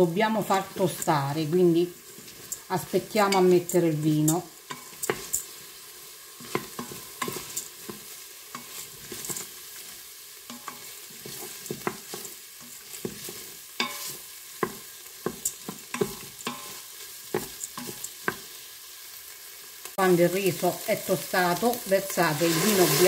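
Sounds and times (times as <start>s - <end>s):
rice sizzling in hot oil: 0.0s - 23.0s
wooden spoon scraping a pot: 2.0s - 5.7s, 6.4s - 18.5s.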